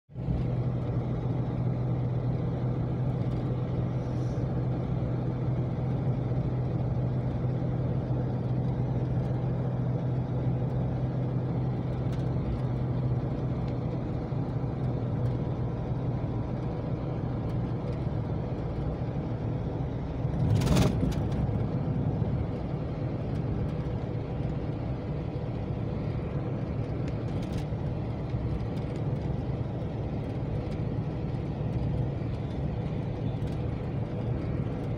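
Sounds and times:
car road and engine noise: 0.1s - 34.9s
low hum: 0.2s - 34.9s.

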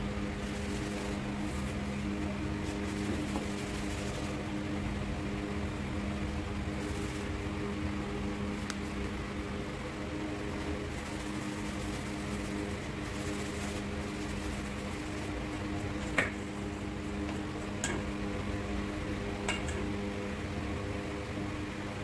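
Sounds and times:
machine hum: 0.0s - 22.0s.

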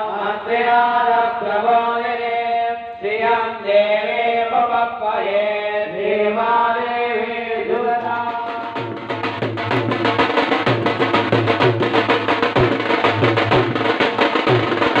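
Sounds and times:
person chanting over a microphone: 0.0s - 8.8s
steady drumming: 8.0s - 15.0s.

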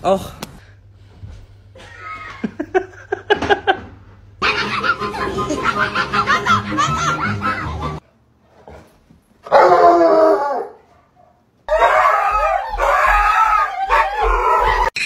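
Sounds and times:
dog howling: 9.5s - 10.8s, 11.7s - 15.0s.

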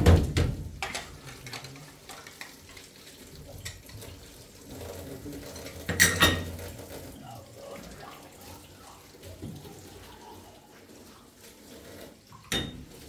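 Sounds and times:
dishes and utensils clinking: 0.8s - 7.0s, 12.4s - 13.0s.

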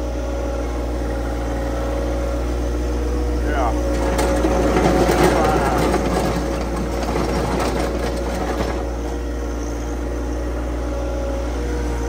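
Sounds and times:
loader engine running: 0.0s - 12.0s
blade scraping gravel: 3.8s - 9.2s.

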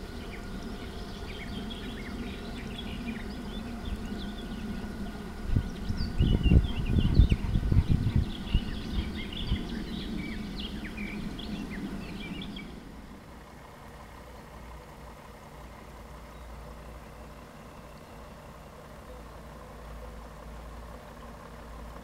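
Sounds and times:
wind buffeting microphone: 0.0s - 13.2s
small birds chirping: 0.0s - 22.0s
steady low hum: 0.0s - 22.0s.

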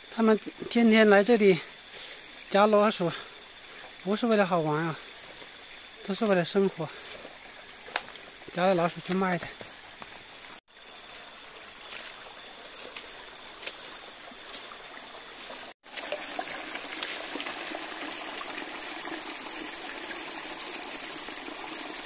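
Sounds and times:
water trickling: 0.1s - 22.0s.

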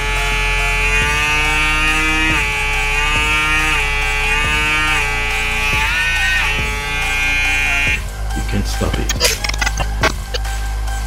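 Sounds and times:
hair clipper motor whining: 0.0s - 8.1s.

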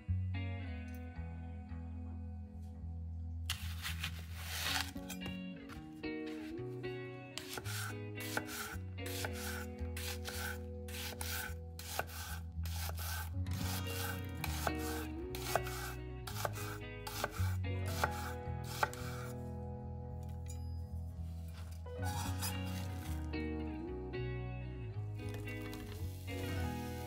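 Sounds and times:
soft background music: 0.0s - 27.0s
knife cutting on cutting board: 3.5s - 5.4s, 7.4s - 19.3s, 22.1s - 23.1s.

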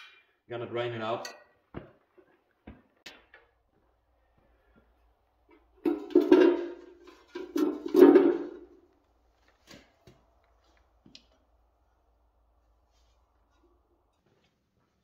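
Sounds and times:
metal can scraping on concrete: 5.8s - 8.7s.

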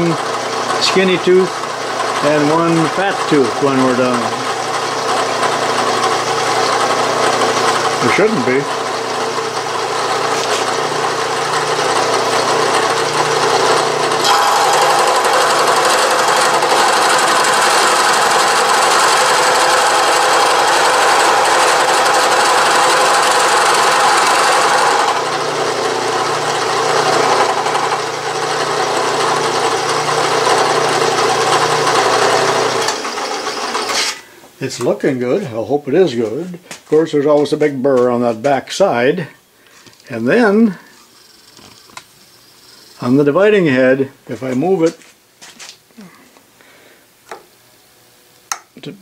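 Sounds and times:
milling machine cutting steel: 0.0s - 34.2s.

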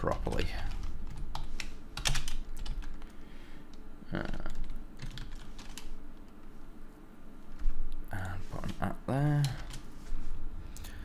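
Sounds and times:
computer keyboard typing: 0.0s - 3.2s, 4.1s - 6.4s, 8.6s - 9.9s.

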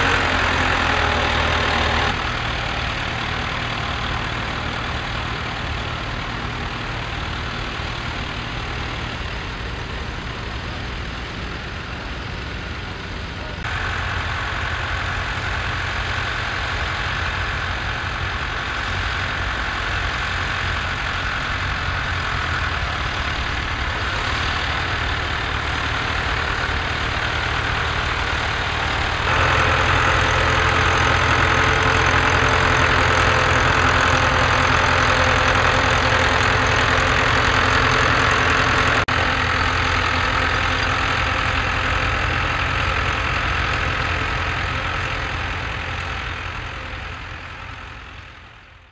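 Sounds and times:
tractor diesel engine running: 0.0s - 48.9s.

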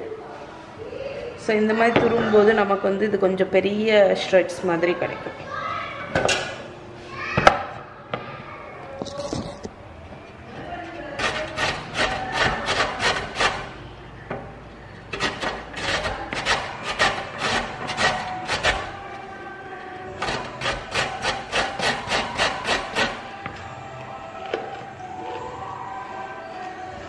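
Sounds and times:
carrot rasping on metal grater: 11.2s - 13.8s, 15.1s - 19.0s, 20.2s - 23.3s.

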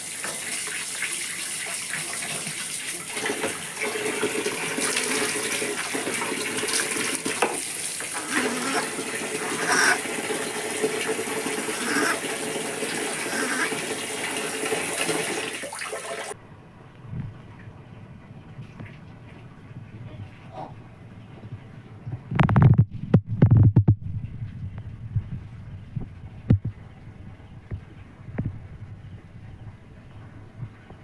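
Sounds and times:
water running and splashing: 0.0s - 16.4s.

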